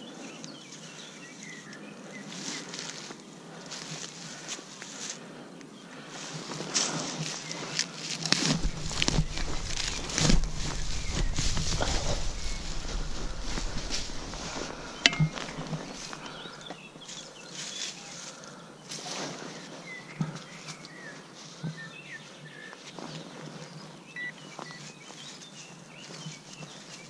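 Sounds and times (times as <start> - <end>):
small birds chirping: 0.0 - 27.0
footsteps and knocks: 8.3 - 16.9.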